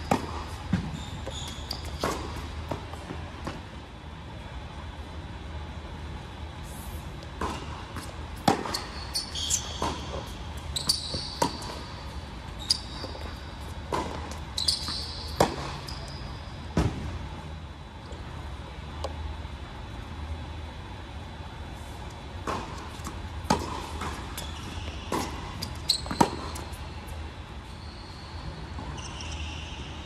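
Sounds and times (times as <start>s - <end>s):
shoes squeaking on court: 0.0s - 3.7s, 7.3s - 17.1s, 22.5s - 30.0s
racket striking tennis ball: 7.4s - 8.8s, 15.3s - 15.9s
tennis ball bouncing: 7.4s - 8.9s, 11.4s - 11.8s, 13.1s - 14.4s, 15.2s - 16.0s, 22.4s - 24.4s, 25.0s - 26.7s.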